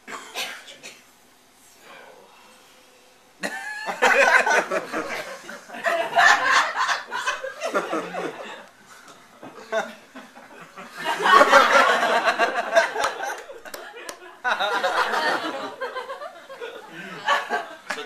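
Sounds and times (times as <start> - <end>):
audience laughing: 3.4 - 8.7, 9.4 - 18.0.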